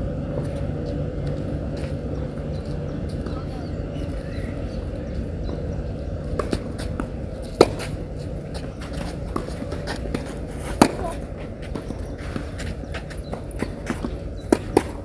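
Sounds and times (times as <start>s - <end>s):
faint ball bounces or footsteps: 6.3s - 15.0s
tennis racket hitting ball: 6.4s - 8.0s, 8.6s - 15.0s.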